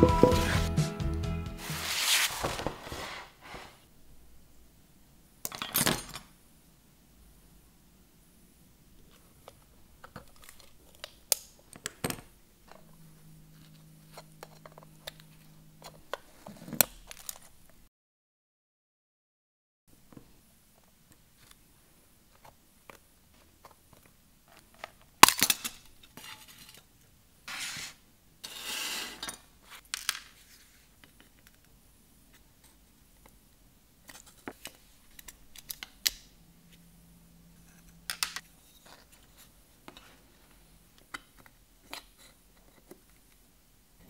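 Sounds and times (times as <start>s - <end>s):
metal scraping: 0.0s - 0.8s.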